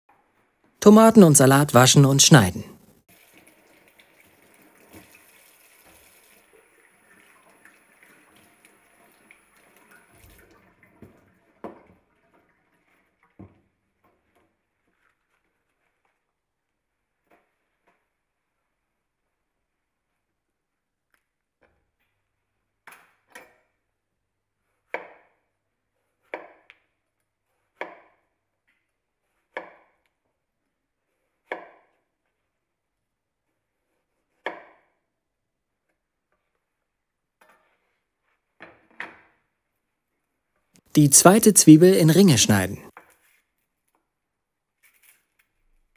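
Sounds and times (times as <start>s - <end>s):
tap water running into sink: 3.1s - 12.7s.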